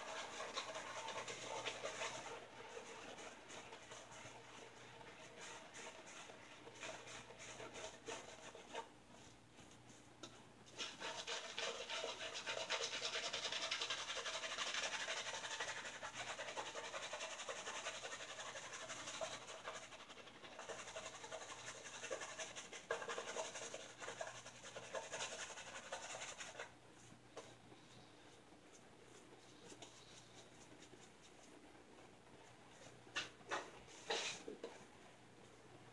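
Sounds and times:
brush scrubbing lather on face: 0:00.0 - 0:09.3, 0:10.7 - 0:26.7.

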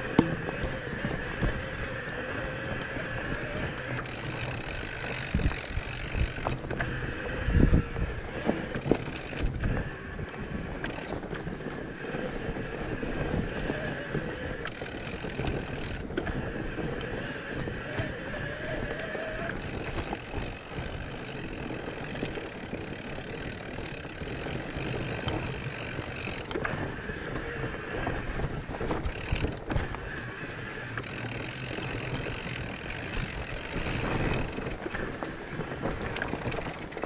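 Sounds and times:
bike knocks and rattles: 0:00.0 - 0:09.9, 0:10.8 - 0:12.3, 0:13.2 - 0:30.2, 0:30.9 - 0:37.0
bike tyres rolling on trail: 0:00.0 - 0:37.0
wind on microphone: 0:00.0 - 0:37.0.

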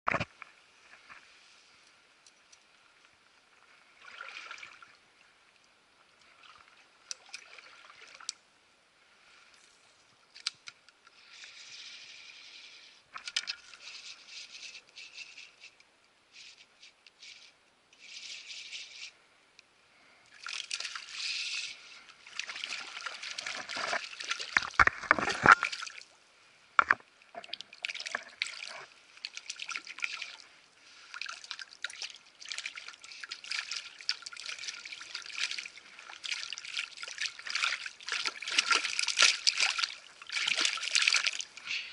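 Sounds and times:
creek water trickling and splashing: 0:00.7 - 0:08.5, 0:20.0 - 0:41.9.

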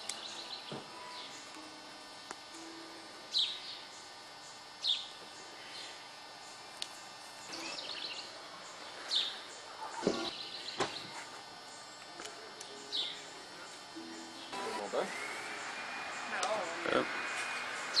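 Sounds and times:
bird chirping and trilling: 0:07.5 - 0:08.4, 0:12.8 - 0:13.3.

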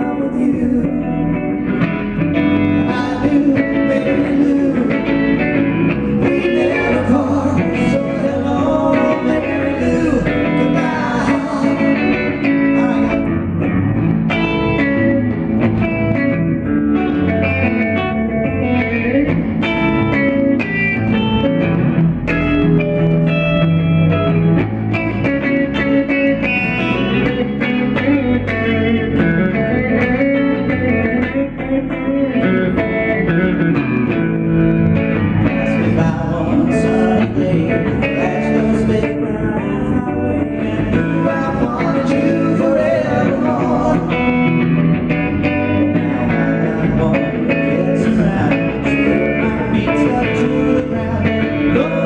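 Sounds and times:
person singing: 0:00.0 - 0:13.7, 0:35.4 - 0:52.0
picked electric guitar: 0:00.0 - 0:52.0
rock band playing: 0:00.0 - 0:52.0.

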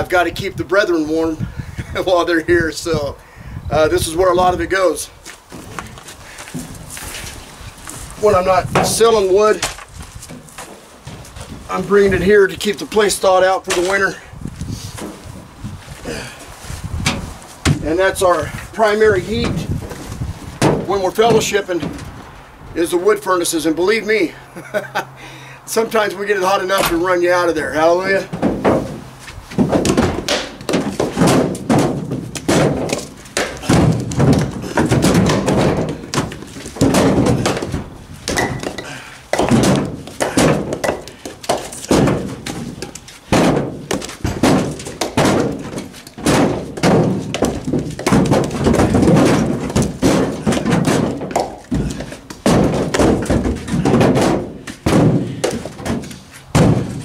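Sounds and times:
firewood knocking on woodpile: 0:08.2 - 0:11.6, 0:17.0 - 0:18.5, 0:19.3 - 0:22.2, 0:27.8 - 0:57.0.

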